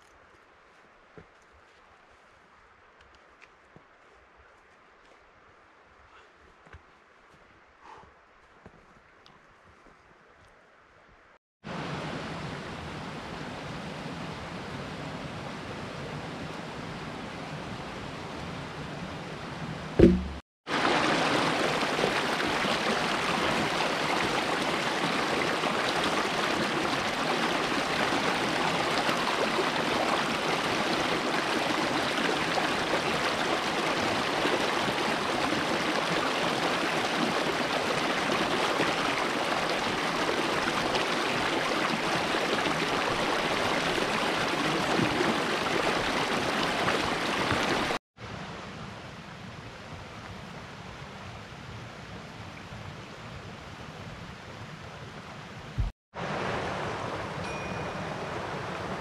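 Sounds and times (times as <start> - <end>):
brief thump: 20.0 - 20.4
stream rushing over rocks: 20.0 - 48.0, 55.8 - 59.0.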